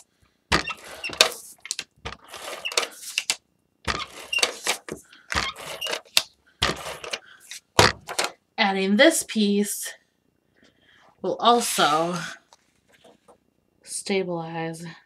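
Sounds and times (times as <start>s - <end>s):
tape runner clicks and taps: 0.5s - 7.2s
tape and paper rustling: 0.7s - 3.4s, 4.0s - 8.3s.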